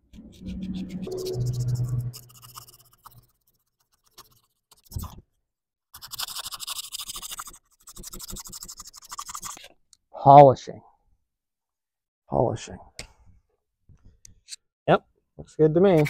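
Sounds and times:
brief low hum: 0.0s - 2.5s.

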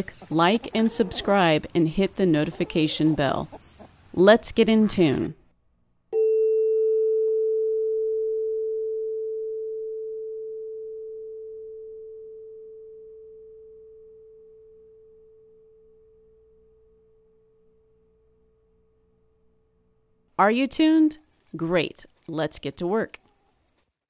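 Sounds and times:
tuning fork ringing: 6.2s - 16.0s.

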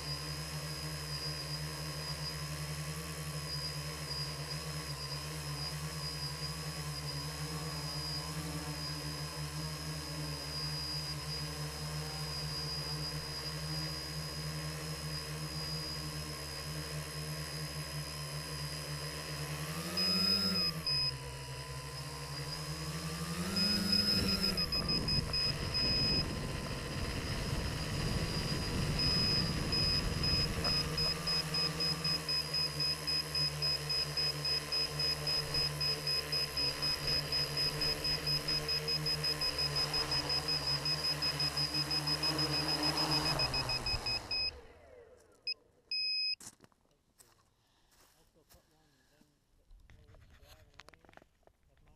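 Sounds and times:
quadcopter motors whirring: 0.0s - 46.4s
high thin electronic beeping: 23.6s - 26.9s, 27.8s - 44.5s.

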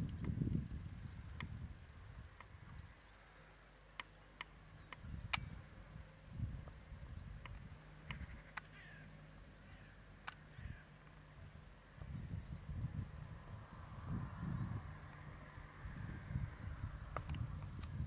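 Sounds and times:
low steady hum: 0.0s - 18.0s
distant bird chirps: 2.3s - 18.0s
sharp clicks: 3.9s - 5.6s, 7.4s - 8.8s, 10.2s - 11.2s.

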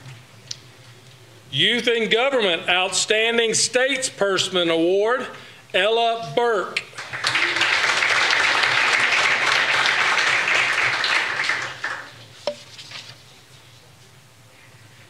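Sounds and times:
audience applauding: 6.9s - 12.2s.

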